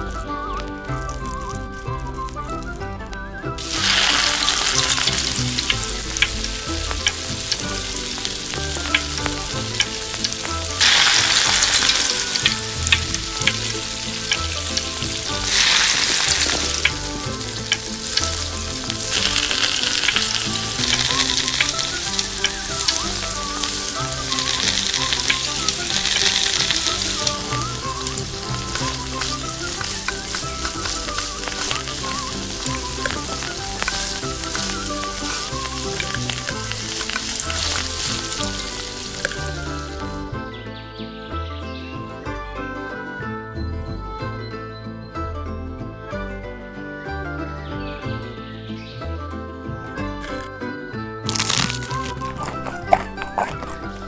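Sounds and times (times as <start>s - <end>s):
fish deep-frying in oil: 3.6s - 40.1s, 51.3s - 54.0s.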